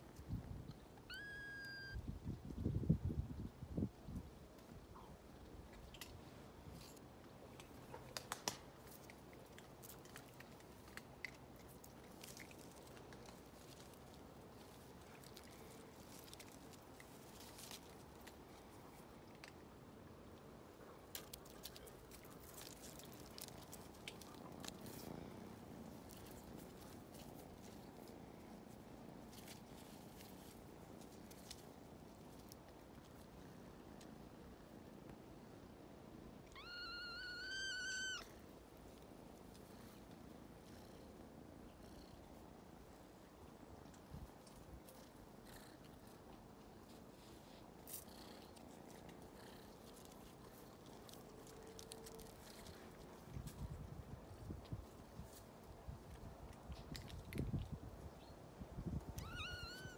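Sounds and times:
kitten meowing: 0:01.0 - 0:02.0, 0:36.5 - 0:38.3, 0:59.2 - 0:59.9.

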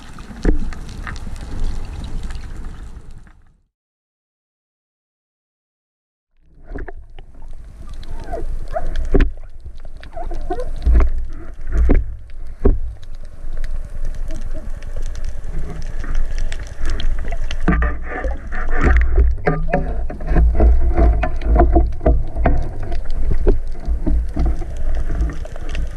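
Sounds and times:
muffled underwater rumble: 0:06.4 - 0:25.9
sharp knocks and clicks: 0:17.6 - 0:25.4.

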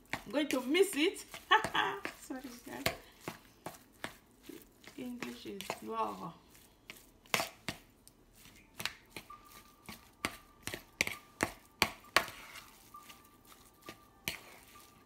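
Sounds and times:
metal spoon scraping a bowl: 0:12.0 - 0:15.0.

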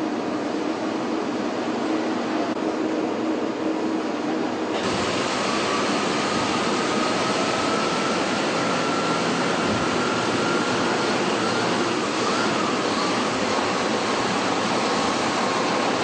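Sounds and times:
factory machinery hiss: 0:04.6 - 0:16.0
faint high whine rising: 0:04.8 - 0:16.0.

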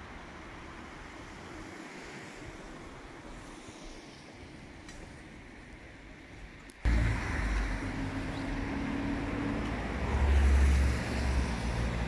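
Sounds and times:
street traffic: 0:04.8 - 0:12.0.

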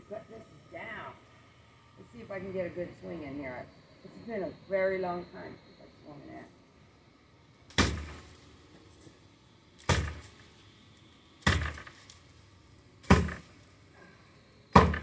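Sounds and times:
axe chopping wood: 0:07.7 - 0:08.3, 0:09.8 - 0:10.3, 0:11.4 - 0:12.0, 0:13.0 - 0:13.5, 0:14.7 - 0:15.0.

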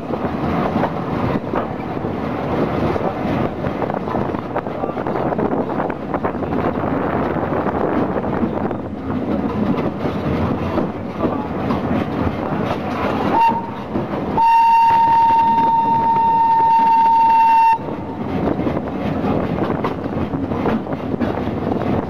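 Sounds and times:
rumble of moving train: 0:00.0 - 0:22.0
steam locomotive whistle: 0:13.3 - 0:13.8, 0:14.4 - 0:17.9.

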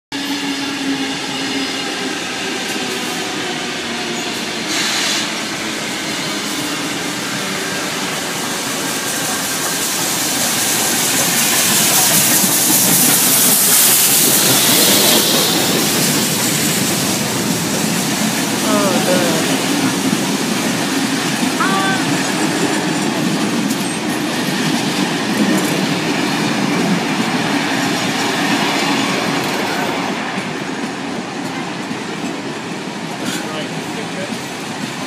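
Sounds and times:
electric train whine: 0:00.2 - 0:35.0
loud hiss of steam: 0:04.4 - 0:18.9
wheels clattering on rails: 0:08.4 - 0:18.6.

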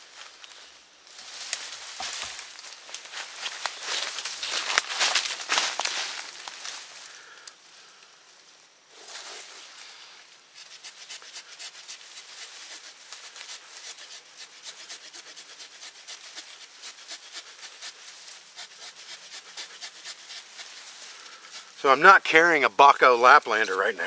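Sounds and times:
small saw rasping through wood: 0:10.6 - 0:22.1.

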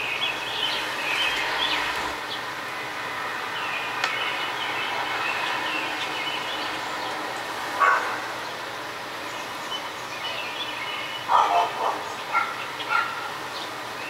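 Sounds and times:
dog barking: 0:07.8 - 0:08.2, 0:11.3 - 0:13.4.

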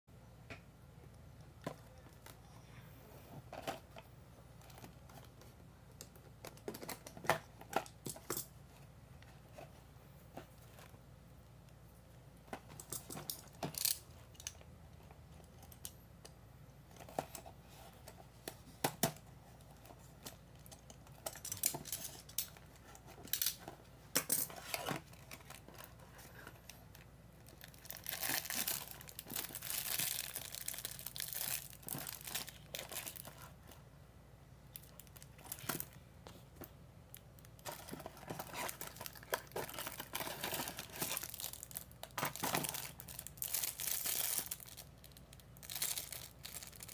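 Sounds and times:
plastic wrap crinkling: 0:24.6 - 0:33.7, 0:36.6 - 0:46.9.

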